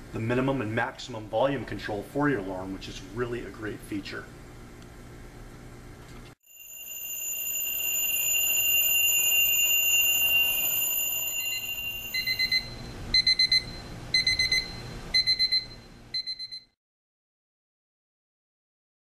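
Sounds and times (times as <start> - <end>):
alarm clock bell ringing: 6.4 - 16.6
alarm clock beeping: 6.4 - 16.8.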